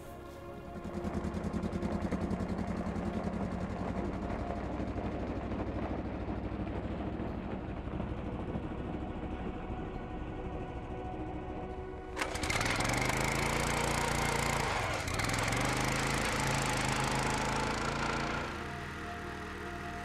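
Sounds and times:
utility vehicle engine running: 0.0 - 20.0.

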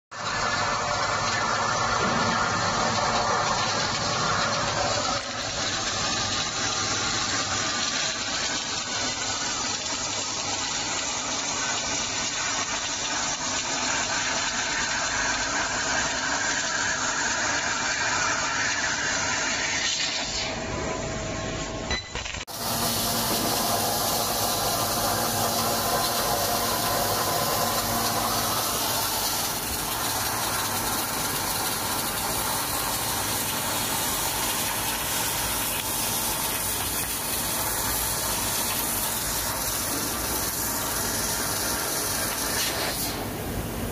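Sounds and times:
machine running noise: 0.1 - 43.9
laser cutter hissing through steel: 22.4 - 43.9.

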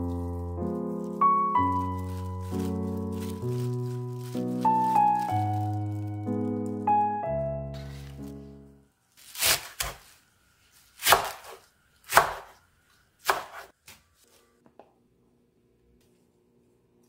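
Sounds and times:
knife cutting chives on wooden board: 13.2 - 14.0.

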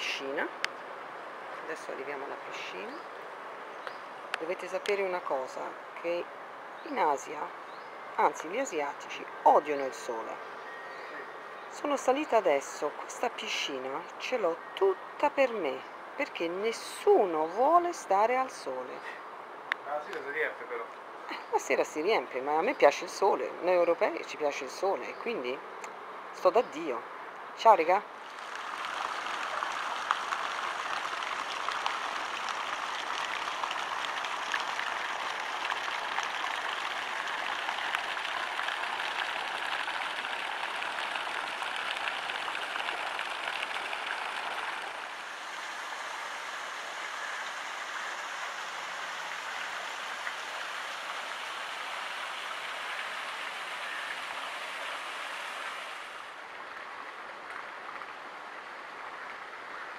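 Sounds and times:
running water rushing: 27.0 - 59.9.

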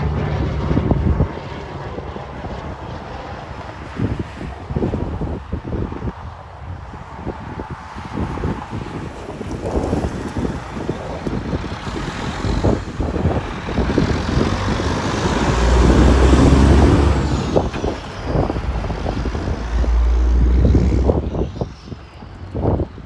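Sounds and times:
truck diesel engine passing: 0.0 - 3.8, 9.1 - 22.7.

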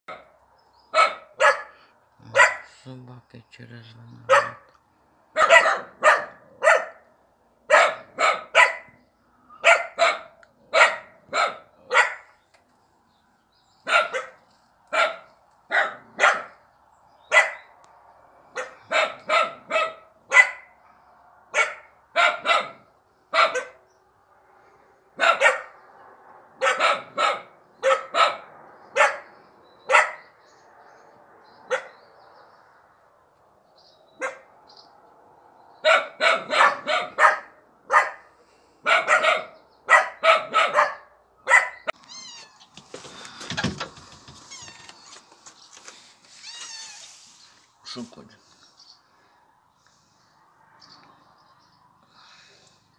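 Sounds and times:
dogs barking: 0.1 - 2.8, 4.2 - 4.7, 5.3 - 12.4, 13.8 - 16.7, 17.3 - 17.8, 18.5 - 23.9, 25.1 - 30.4, 31.6 - 32.2, 34.2 - 34.6, 35.8 - 42.0.

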